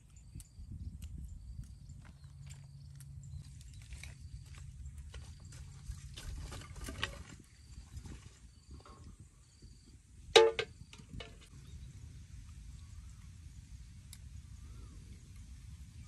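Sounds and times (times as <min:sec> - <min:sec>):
wind rumble on microphone: 0:00.0 - 0:16.0
firewood rustling and knocking: 0:05.0 - 0:08.0, 0:10.4 - 0:11.5.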